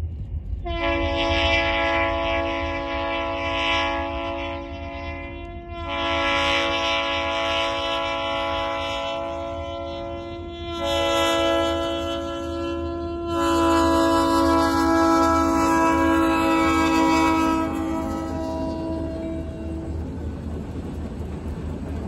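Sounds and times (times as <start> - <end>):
locomotive air horn: 0.6 - 20.0
low engine rumble: 15.2 - 22.0.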